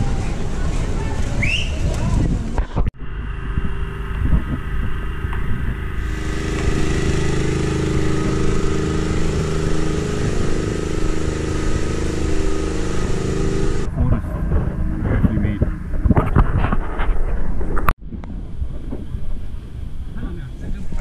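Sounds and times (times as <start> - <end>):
engine droning: 3.0 - 16.3.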